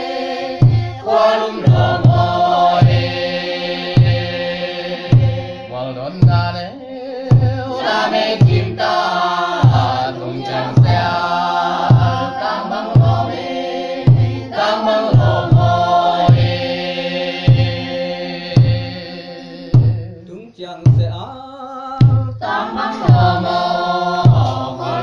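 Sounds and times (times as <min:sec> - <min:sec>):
group chant-like singing: 0:00.0 - 0:20.1, 0:21.8 - 0:25.0
deep drum beats: 0:00.0 - 0:25.0.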